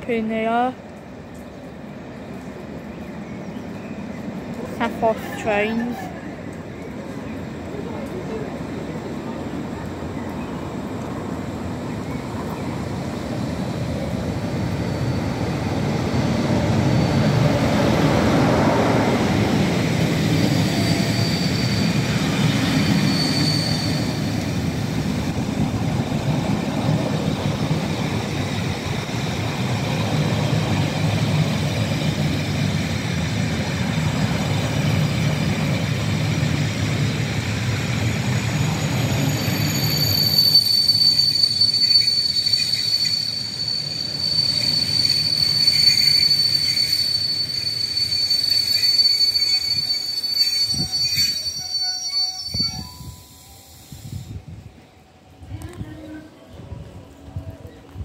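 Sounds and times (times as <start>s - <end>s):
diesel locomotive engine: 0.0s - 58.0s
train coaches rumbling by: 0.0s - 58.0s
brake squeals: 20.6s - 24.5s, 39.3s - 53.8s.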